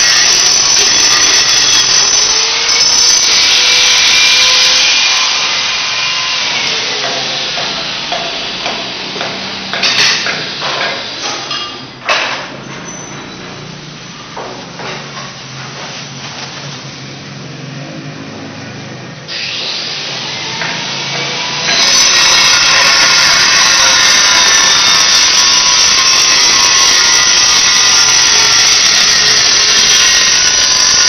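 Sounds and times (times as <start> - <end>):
power tool grinding tile: 0.0 - 11.2, 19.3 - 31.0.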